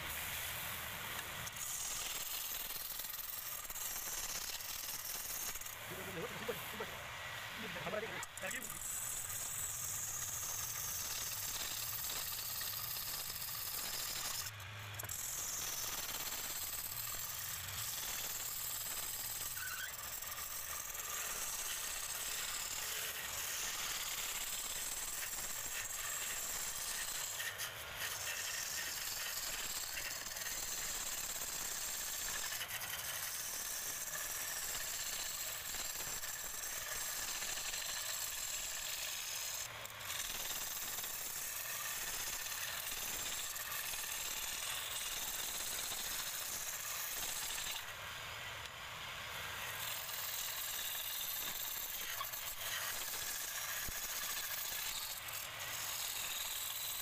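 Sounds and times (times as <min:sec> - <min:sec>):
turning tool scraping wood on lathe: 0:01.1 - 0:47.9, 0:49.4 - 0:57.0.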